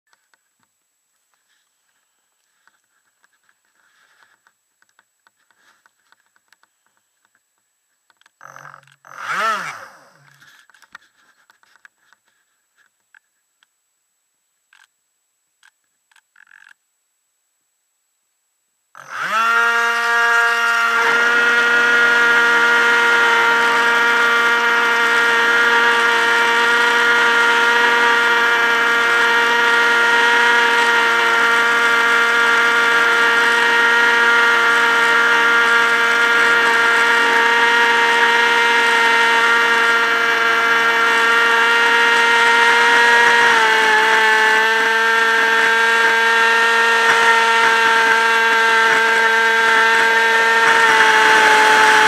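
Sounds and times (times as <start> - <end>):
electric motor and propeller whine: 8.4 - 10.9, 19.0 - 52.0.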